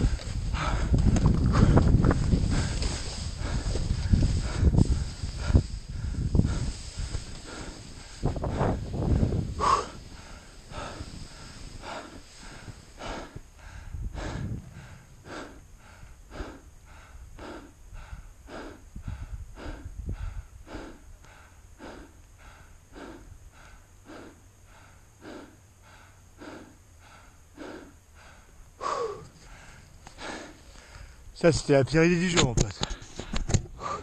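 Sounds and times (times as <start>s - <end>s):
low rumble: 0.0s - 21.8s
person breathing hard: 0.0s - 31.3s, 32.8s - 34.0s.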